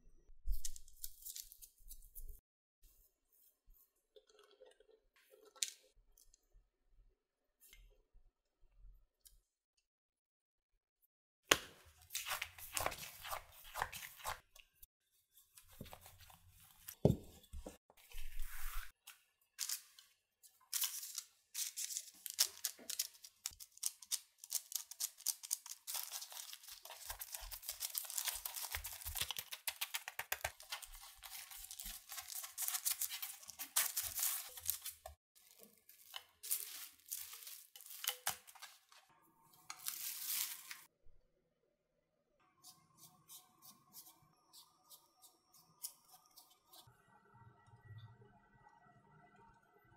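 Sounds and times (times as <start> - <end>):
food scratching and crunching: 21.8 - 39.0.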